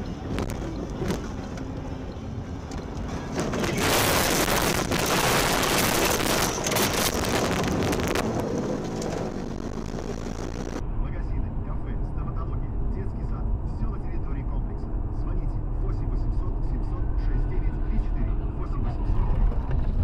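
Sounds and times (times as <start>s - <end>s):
car driving on snowy road: 0.0s - 20.0s
snow and branches battering car: 3.5s - 10.8s.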